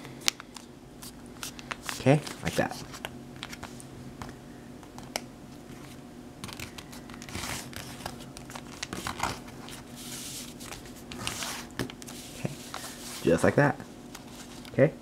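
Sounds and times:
paper crinkling and rustling: 0.4s - 3.8s, 5.7s - 13.4s.

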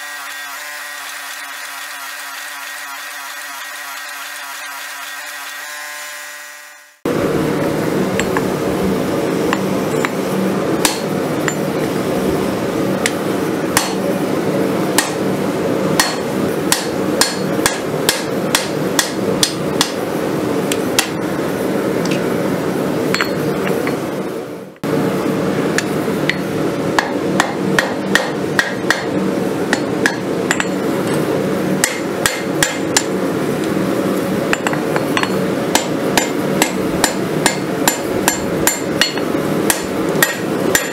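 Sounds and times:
steady machine hum: 0.0s - 40.9s
hammer striking metal on anvil: 10.8s - 11.7s, 13.8s - 14.0s, 15.0s - 15.2s, 16.0s - 20.0s, 23.1s - 23.5s, 27.0s - 30.8s, 31.8s - 33.1s, 34.5s - 40.9s.

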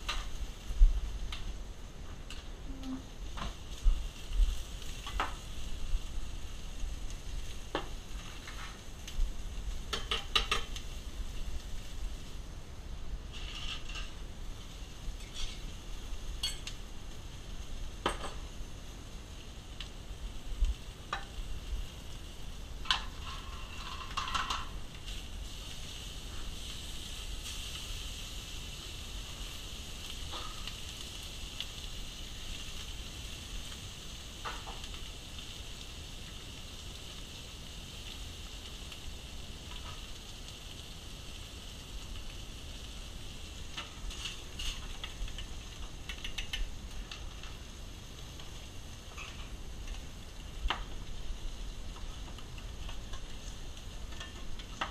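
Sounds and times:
food sizzling in a pan: 0.0s - 54.9s
pans and utensils clinking: 9.9s - 10.8s, 16.4s - 16.8s, 22.8s - 24.8s.

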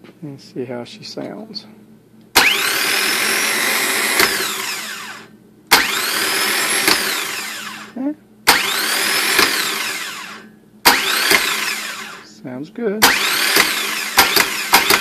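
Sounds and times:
starter motor whining: 2.4s - 12.3s, 13.0s - 15.0s
starter motor engaging clack: 9.4s - 9.7s, 10.9s - 11.6s, 13.0s - 15.0s
starter motor click: 13.0s - 15.0s.

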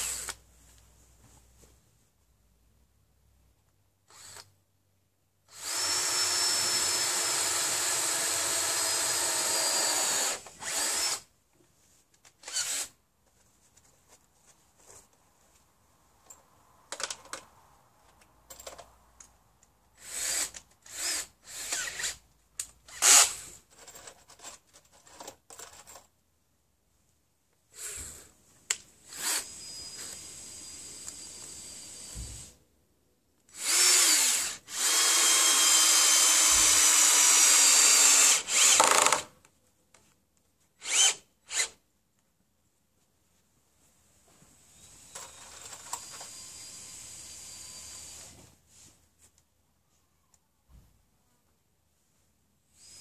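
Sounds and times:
cordless drill running: 4.1s - 4.5s, 5.5s - 11.3s, 12.4s - 12.9s, 20.0s - 22.2s, 22.9s - 23.4s, 29.1s - 32.5s, 33.5s - 39.3s, 40.8s - 41.7s
drill trigger clicks: 33.6s - 39.3s.

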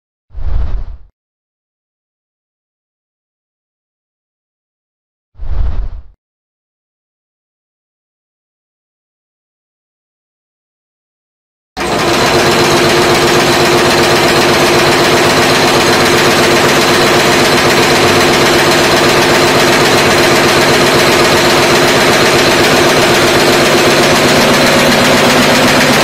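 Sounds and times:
nail making machine clattering: 11.8s - 26.0s.

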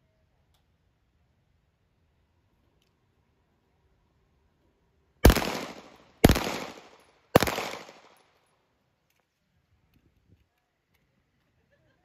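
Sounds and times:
pistol shots echoing: 5.2s - 8.2s.

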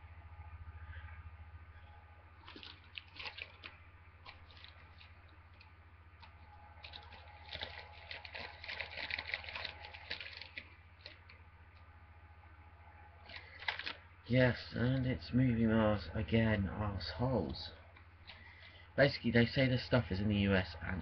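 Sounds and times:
low electrical hum: 0.0s - 21.0s
packaging crinkling: 2.4s - 11.4s, 13.2s - 14.1s.

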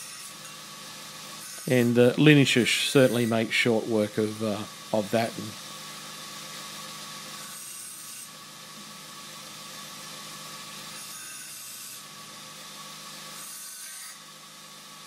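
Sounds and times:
belt sander motor hum: 0.0s - 7.5s
metal sanding hiss: 1.4s - 5.6s.

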